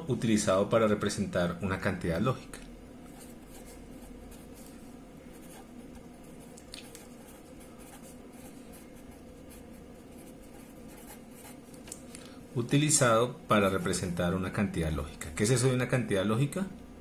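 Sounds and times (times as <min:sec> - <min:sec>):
steady low hum: 0:00.0 - 0:17.0
pen scratching on paper: 0:06.8 - 0:11.6.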